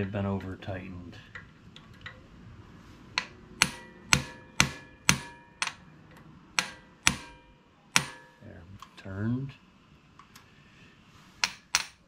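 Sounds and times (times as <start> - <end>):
hammer striking metal tool: 3.2 - 5.9, 6.6 - 8.4, 11.4 - 12.0.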